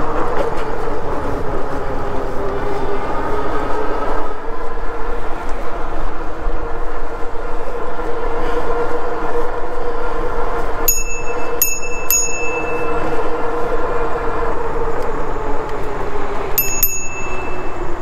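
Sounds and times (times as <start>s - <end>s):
e-bike rolling hum: 0.0s - 18.0s
bicycle bell dings: 10.9s - 13.3s, 16.6s - 18.0s.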